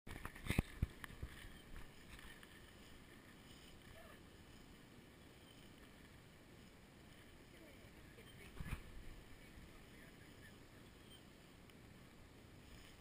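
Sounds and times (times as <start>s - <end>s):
wind rumble on microphone: 0.1s - 13.0s
soft clicks: 11.1s - 11.8s.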